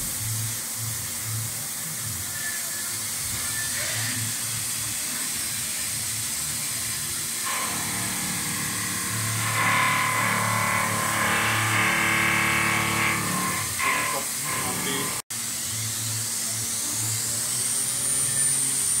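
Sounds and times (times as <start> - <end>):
coolant spraying hiss: 0.0 - 7.4
high-pitched milling tones: 7.4 - 15.2.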